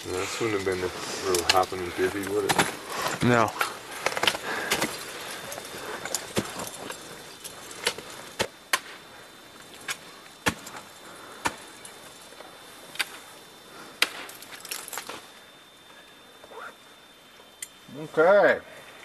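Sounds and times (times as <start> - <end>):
ice axes striking ice: 2.4 - 7.1, 9.8 - 11.8.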